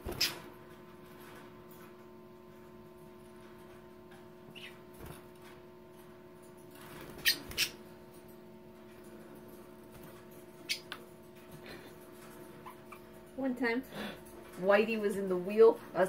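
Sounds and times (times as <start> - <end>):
budgerigars chirping: 10.6 - 11.0.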